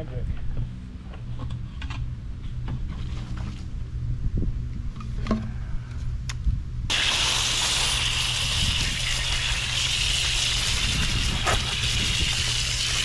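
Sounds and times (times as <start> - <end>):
hose water spraying: 6.9 - 13.0.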